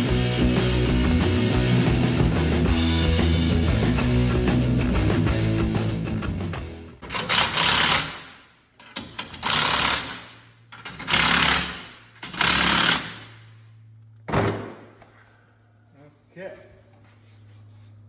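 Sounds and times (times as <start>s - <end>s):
impact wrench hammering: 7.0s - 13.4s.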